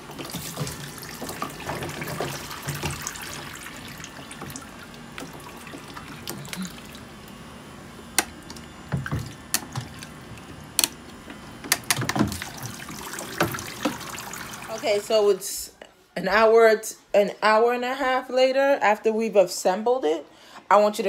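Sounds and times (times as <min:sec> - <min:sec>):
water trickling and splashing: 0:00.0 - 0:07.0, 0:12.2 - 0:15.1.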